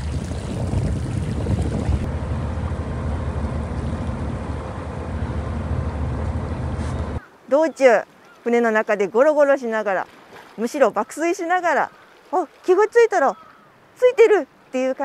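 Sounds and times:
wind on microphone: 0.0 - 2.2
boat engine running: 0.0 - 7.2
water rushing past hull: 0.0 - 7.3, 9.6 - 13.3.

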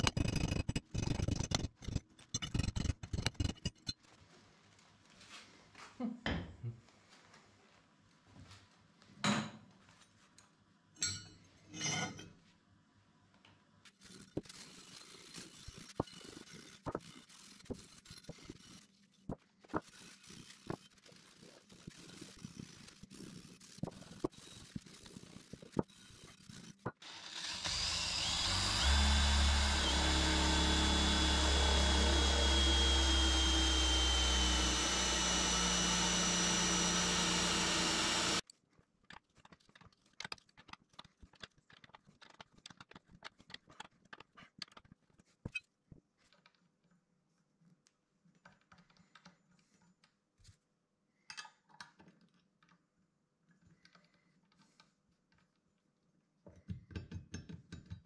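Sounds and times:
small tools clicking and tapping: 0.0 - 4.0, 37.9 - 47.0, 51.2 - 52.9, 53.5 - 55.7, 56.5 - 58.0
cordless drill boring into wood: 27.0 - 38.4.

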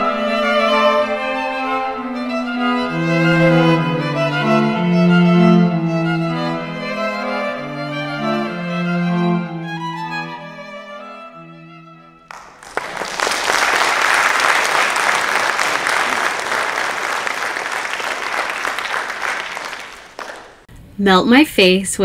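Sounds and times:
slow bowed-string music: 0.0 - 12.3
audience applause: 12.3 - 20.6.

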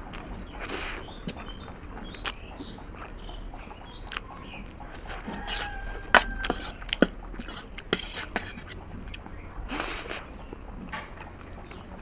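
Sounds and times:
wet slurping of noodles: 0.0 - 1.6, 4.1 - 9.1, 9.7 - 10.4.

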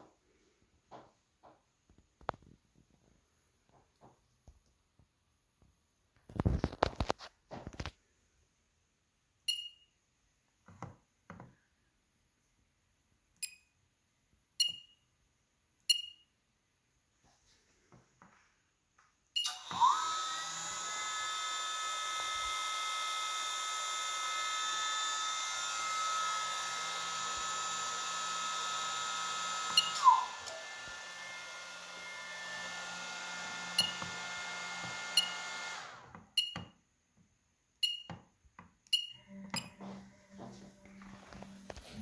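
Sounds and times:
short beeps from controller: 9.5 - 9.9, 14.6 - 15.0, 15.9 - 16.3, 19.4 - 19.8, 29.8 - 30.2, 36.4 - 36.7, 37.8 - 38.2, 38.9 - 39.8
spindle motor whining: 19.4 - 36.6.

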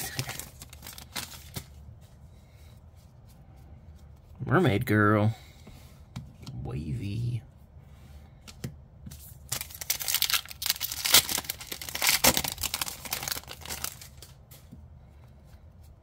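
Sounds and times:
foil wrapper crinkling and tearing: 0.0 - 1.7, 9.4 - 14.4.

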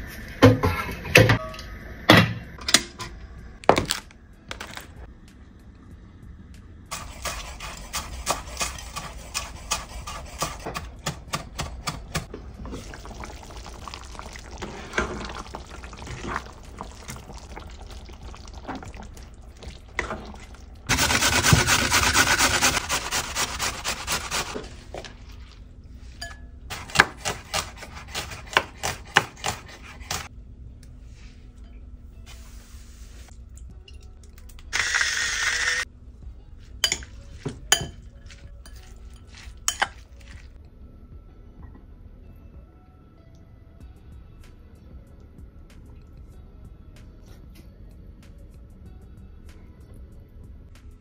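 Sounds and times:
knife chopping on wooden board: 26.7 - 30.2.

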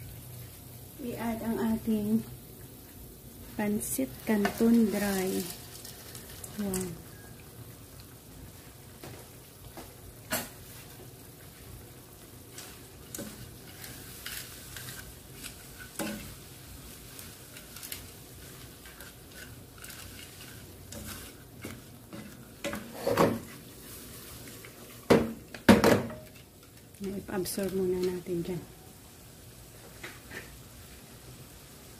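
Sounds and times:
simmering liquid sizzling: 0.0 - 31.9
wooden spatula scraping a pot: 12.5 - 25.0.

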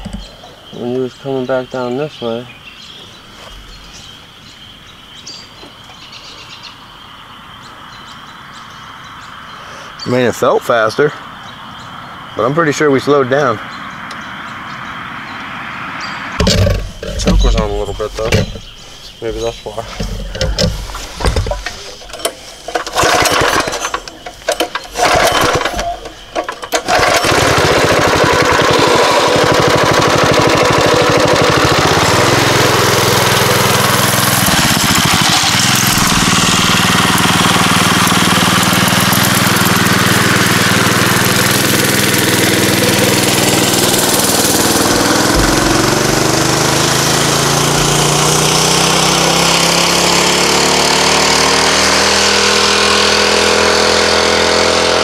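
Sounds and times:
mini bike engine revving: 16.4 - 18.6, 20.0 - 55.0.

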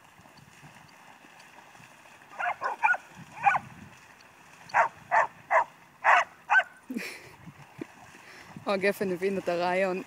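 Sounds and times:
dog barking: 2.4 - 3.6, 4.7 - 6.7.

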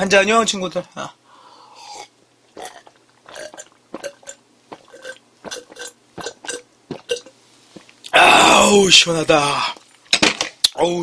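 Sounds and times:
man gulping a drink: 1.8 - 8.2.

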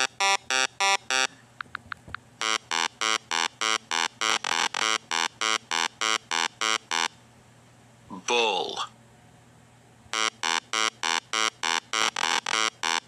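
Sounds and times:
electronic buzzer pulsing: 0.0 - 1.3, 2.4 - 7.2, 10.1 - 13.0.

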